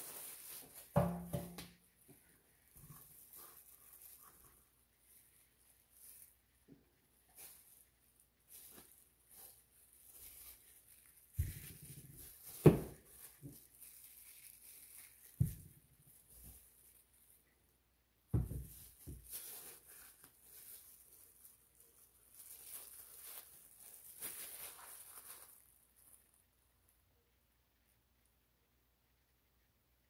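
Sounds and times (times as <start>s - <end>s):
plastic glove crinkling: 0.0s - 17.6s, 18.3s - 26.9s
plastic cups set down on table: 0.9s - 1.8s, 18.4s - 19.2s.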